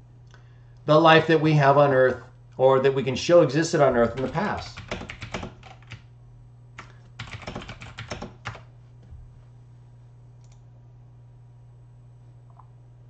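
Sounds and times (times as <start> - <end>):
faint low hum: 0.0 - 13.0
typing on computer keyboard: 4.0 - 6.1, 6.8 - 8.7.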